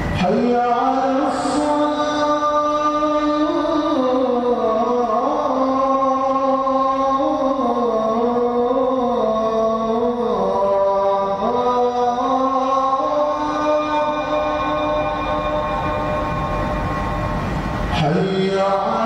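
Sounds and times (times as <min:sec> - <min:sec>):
man chanting: 0:00.0 - 0:17.2, 0:17.9 - 0:19.0.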